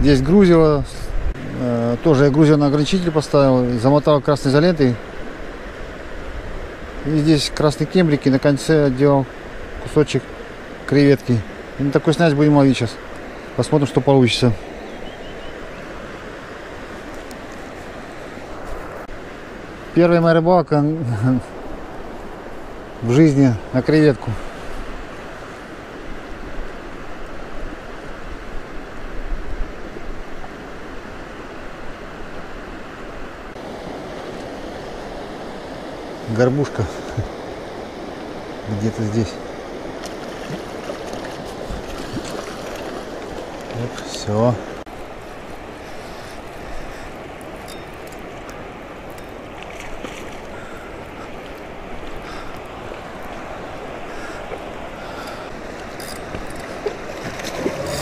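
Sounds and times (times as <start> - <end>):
river flowing over stones: 1.3 - 58.0
river rushing over rapids: 29.8 - 58.0.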